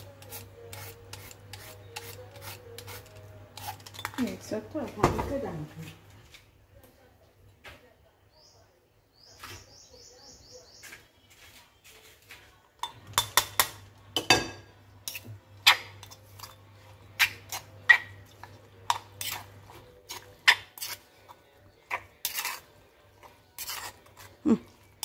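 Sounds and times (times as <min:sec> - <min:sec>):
metal spoon clinking in stone mortar: 0:03.6 - 0:04.3, 0:12.8 - 0:16.6, 0:21.9 - 0:22.6.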